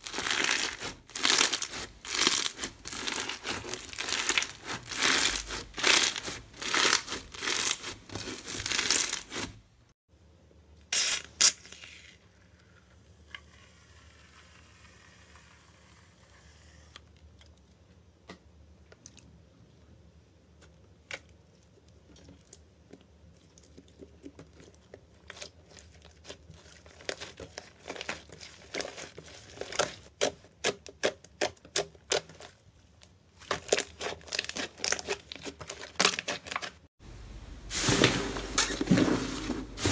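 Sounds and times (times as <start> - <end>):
crunchy slime crackling and popping: 0.0 - 9.5, 24.6 - 32.6, 33.4 - 36.8.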